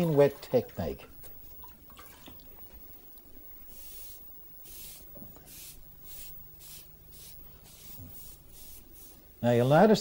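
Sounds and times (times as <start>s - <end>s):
brush swishing across paper: 3.8s - 9.2s.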